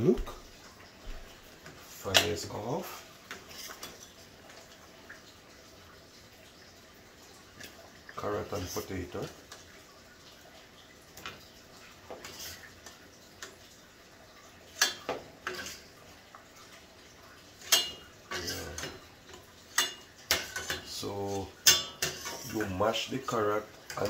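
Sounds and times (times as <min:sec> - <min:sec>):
metal spoon clinking on pot: 0:21.6 - 0:22.4.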